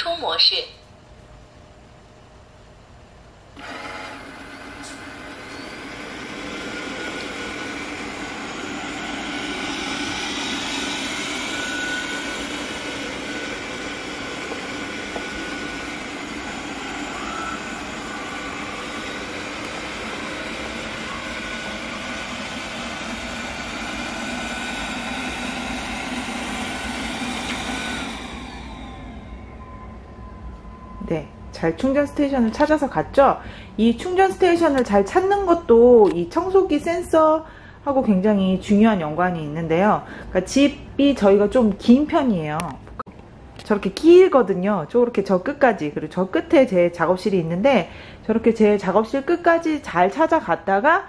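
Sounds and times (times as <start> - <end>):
robot vacuum cleaner running: 3.6 - 31.2.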